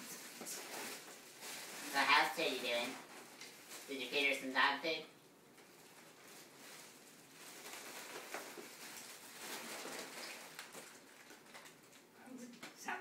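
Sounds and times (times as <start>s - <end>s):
foil balloon hiss and crinkle: 0.0s - 12.6s.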